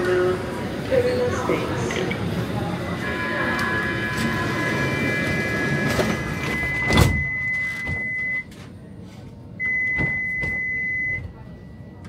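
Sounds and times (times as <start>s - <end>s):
platform noise: 0.0s - 8.5s
high door warning tone: 2.9s - 8.6s
train doors thudding shut: 5.6s - 8.1s.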